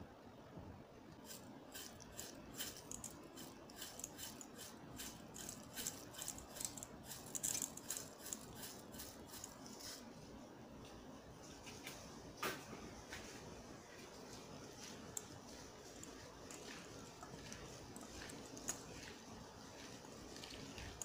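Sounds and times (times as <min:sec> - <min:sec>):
seeds sprinkled into a metal bowl: 0:01.2 - 0:10.0.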